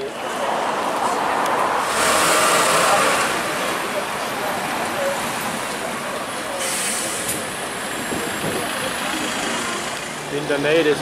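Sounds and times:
buses and cars passing: 0.0 - 11.0
short hiss: 6.6 - 7.4.

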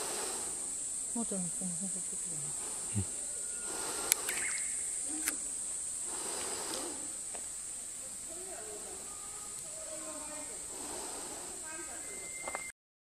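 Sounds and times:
insects droning: 0.0 - 12.7
faint voices: 0.5 - 12.7
sharp clicks: 4.0 - 5.4.

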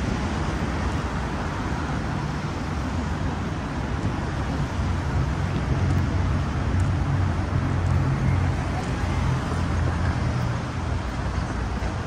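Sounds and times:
traffic low rumble: 0.0 - 12.0.

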